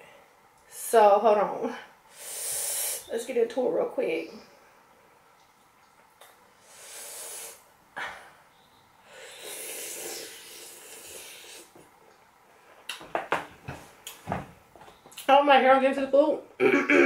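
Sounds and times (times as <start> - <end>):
hissing breaths: 2.1 - 3.1, 6.5 - 11.8.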